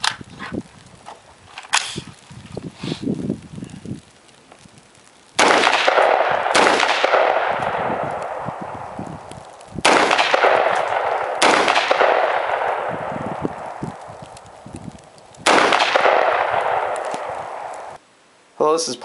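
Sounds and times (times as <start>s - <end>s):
rifle shots with echo: 5.4s - 8.9s, 9.8s - 14.0s, 15.4s - 18.0s.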